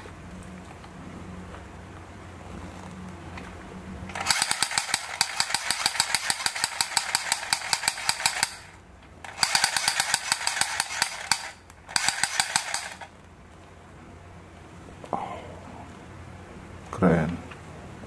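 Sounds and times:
toy gun electronic gunfire: 0:04.1 - 0:13.1.

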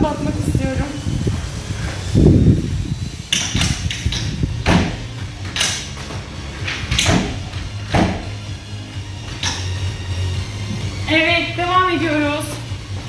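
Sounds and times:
window thump: 0:04.6 - 0:05.6, 0:06.9 - 0:08.3.

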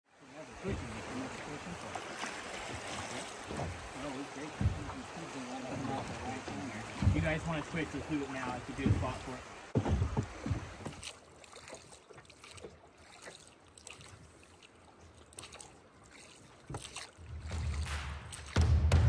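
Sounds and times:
river current rushing: 0:00.2 - 0:11.7.

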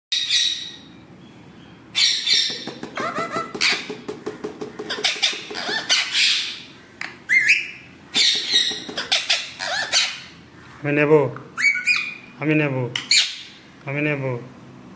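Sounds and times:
parakeet chattering calls: 0:02.0 - 0:10.5, 0:11.6 - 0:12.3
parakeet squawking: 0:02.0 - 0:10.5, 0:11.6 - 0:12.3, 0:13.0 - 0:13.6.

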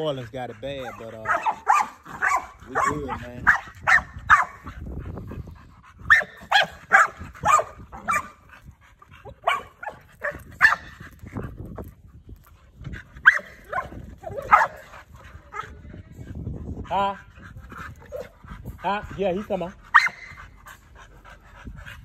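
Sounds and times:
dogs barking: 0:00.0 - 0:04.8, 0:06.0 - 0:08.5, 0:09.2 - 0:11.0, 0:13.2 - 0:15.8, 0:17.7 - 0:20.5.

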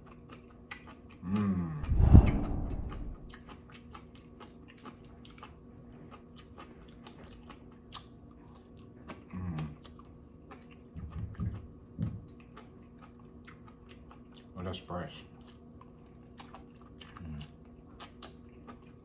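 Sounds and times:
chewing seaweed salad: 0:00.0 - 0:02.0, 0:02.8 - 0:19.0
low mouth sounds: 0:01.2 - 0:03.4.

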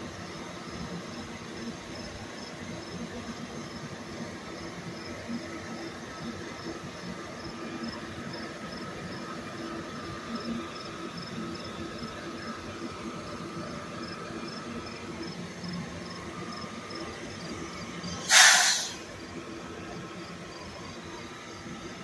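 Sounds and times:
train wheels rumbling on rails: 0:00.0 - 0:22.0
burst of hissing air: 0:18.1 - 0:19.2.

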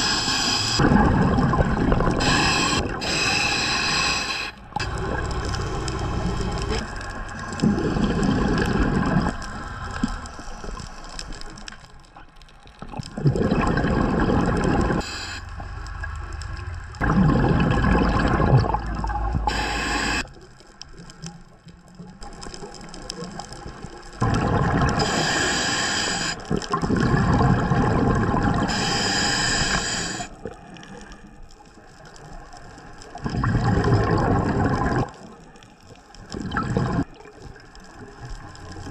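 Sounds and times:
regulator hissing inhale: 0:00.0 - 0:00.8, 0:02.1 - 0:06.9, 0:09.3 - 0:11.7, 0:15.0 - 0:15.6, 0:19.4 - 0:20.3, 0:25.0 - 0:26.6, 0:28.6 - 0:30.4
exhaled bubbles rushing: 0:00.6 - 0:03.5, 0:04.7 - 0:10.2, 0:12.9 - 0:20.3, 0:22.2 - 0:25.2, 0:26.5 - 0:28.7, 0:33.1 - 0:35.4, 0:36.2 - 0:38.9.

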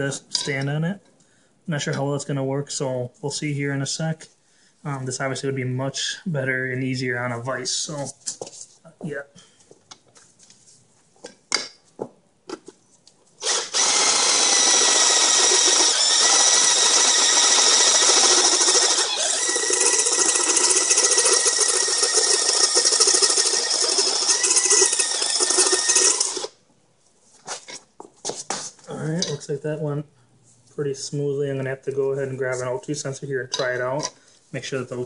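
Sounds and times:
cordless drill cutting metal: 0:13.4 - 0:26.6.

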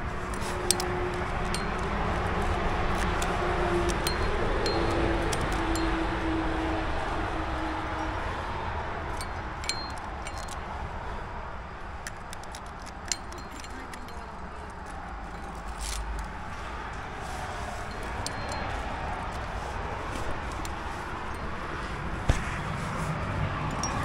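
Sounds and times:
metal carabiners clinking: 0:00.0 - 0:06.2, 0:09.1 - 0:11.2, 0:11.8 - 0:22.0, 0:23.7 - 0:24.0.

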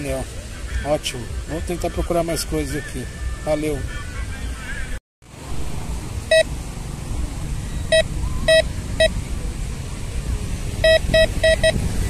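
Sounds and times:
metal detector beeps: 0:07.9 - 0:09.2, 0:10.8 - 0:11.8.

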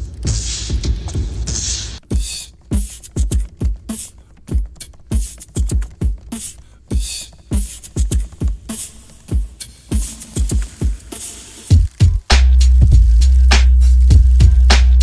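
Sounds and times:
laptop keyboard typing: 0:02.0 - 0:09.6.

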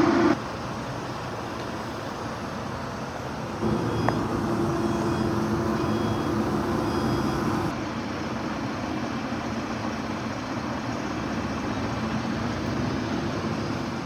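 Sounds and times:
vehicle engine idling: 0:03.6 - 0:14.0.

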